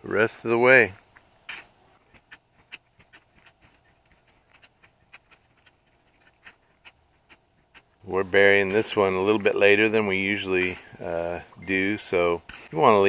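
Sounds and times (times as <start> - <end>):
shovel scooping dirt: 0.2 - 13.0
faint clicks and crackles: 0.9 - 8.0.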